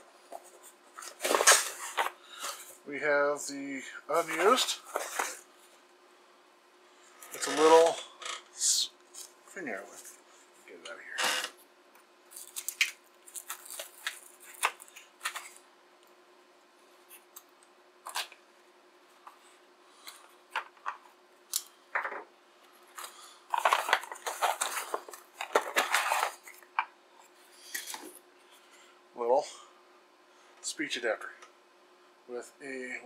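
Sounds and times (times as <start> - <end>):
faint steady hum: 0.0 - 33.0
packaging rustling and crinkling: 12.3 - 15.6, 22.9 - 26.8
packaging tearing: 12.3 - 15.6.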